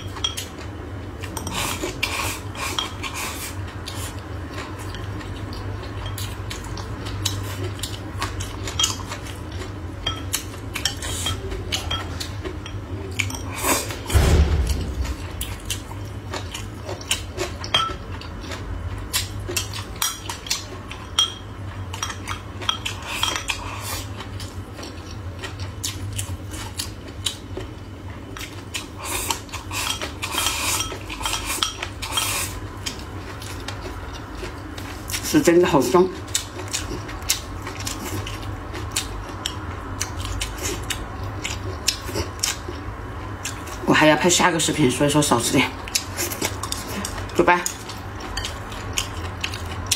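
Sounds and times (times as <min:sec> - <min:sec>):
steady low hum: 0:00.0 - 0:49.9
low thump: 0:14.1 - 0:15.4.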